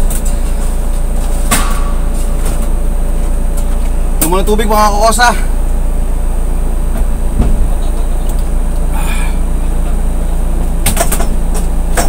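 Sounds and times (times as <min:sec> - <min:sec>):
van engine idling: 0:00.0 - 0:12.0.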